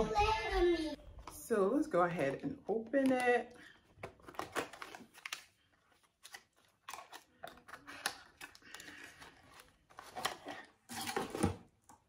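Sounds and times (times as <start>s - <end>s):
box handling clicks and rustling: 3.9s - 5.4s, 6.2s - 11.7s.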